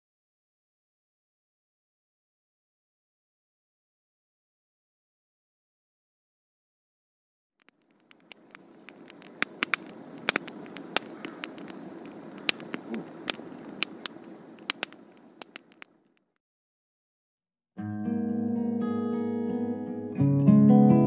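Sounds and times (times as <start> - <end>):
irregular crackling and pops: 7.6 - 16.4.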